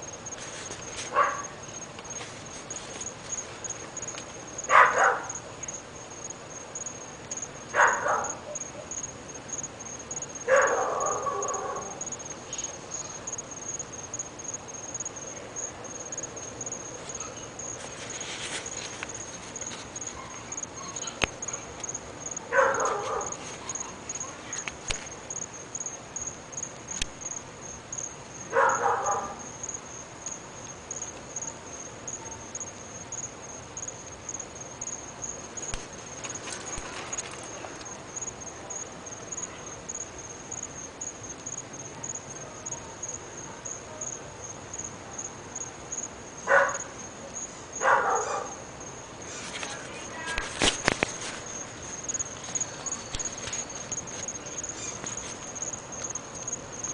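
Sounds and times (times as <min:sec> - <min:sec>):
dog barking: 0:01.1 - 0:01.6, 0:04.7 - 0:05.4, 0:07.7 - 0:08.9, 0:10.5 - 0:12.0, 0:20.1 - 0:21.6, 0:22.5 - 0:24.4, 0:28.5 - 0:29.5, 0:46.5 - 0:46.9, 0:47.8 - 0:48.6.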